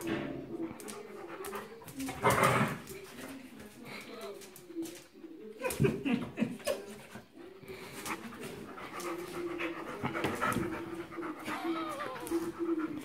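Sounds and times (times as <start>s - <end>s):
dogs play noises: 0.0s - 13.0s
dogs panting: 0.6s - 4.1s, 6.6s - 13.0s.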